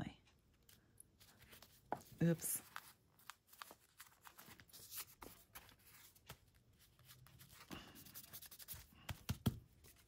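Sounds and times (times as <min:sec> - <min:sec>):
paper rustling and tapping: 0:08.2 - 0:10.0.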